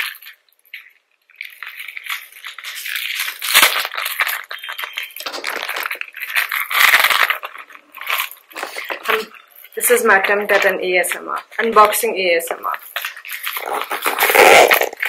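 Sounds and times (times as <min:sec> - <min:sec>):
cardboard crinkling and rustling: 0:00.0 - 0:15.0
plastic links rattling and clicking: 0:00.0 - 0:15.0.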